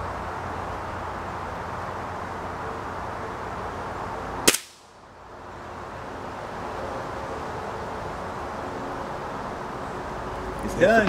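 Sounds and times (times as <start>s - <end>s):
air rifle shot crack: 4.5s - 4.9s.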